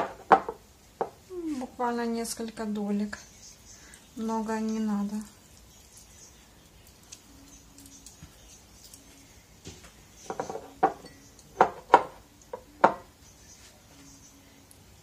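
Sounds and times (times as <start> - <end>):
china cup clinking and knocking: 0.0 - 1.2, 10.2 - 13.1.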